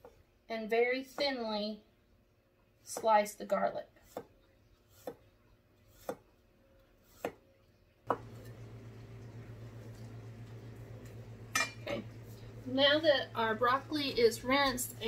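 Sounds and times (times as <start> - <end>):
knife slicing on wooden board: 4.9 - 5.3, 5.9 - 6.3, 7.0 - 7.4
steady low hum: 8.1 - 15.0.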